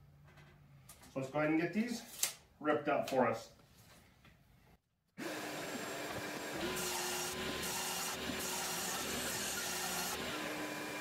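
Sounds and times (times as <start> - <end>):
saw blade cutting wood: 5.2 - 10.9
table saw blade humming: 5.2 - 11.0.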